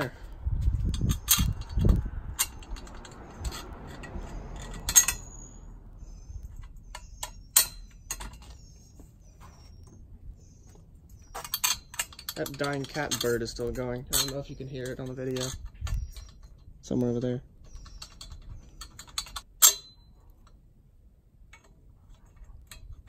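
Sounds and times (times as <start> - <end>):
metal bolt clicks and knocks: 0.8 - 5.4, 6.4 - 8.6, 11.3 - 16.7, 17.6 - 20.6
bird chirping: 1.0 - 19.4.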